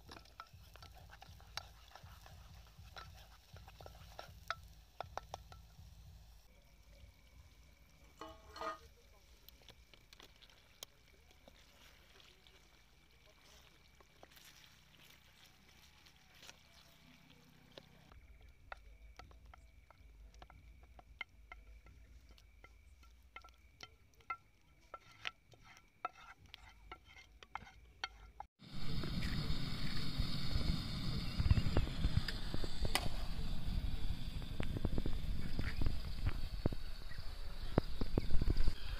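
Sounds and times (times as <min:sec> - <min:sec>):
spoon clicking and scraping: 0:00.0 - 0:05.8, 0:08.2 - 0:08.8, 0:18.7 - 0:28.5
stirring in a pan: 0:00.0 - 0:06.6, 0:07.8 - 0:28.8
steady high hiss: 0:28.6 - 0:38.9
wind rumble on microphone: 0:28.6 - 0:38.9.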